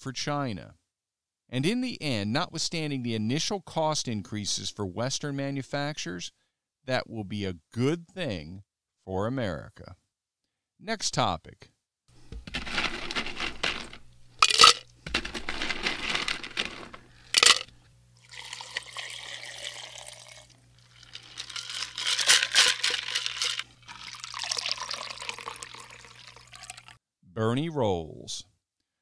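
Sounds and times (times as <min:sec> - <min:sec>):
liquid pouring into a glass: 0:18.2 - 0:27.0.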